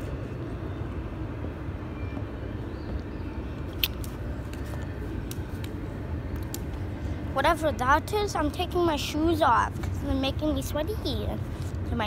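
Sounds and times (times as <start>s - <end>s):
low outdoor rumble: 0.0s - 12.0s
sharp click: 3.7s - 4.6s.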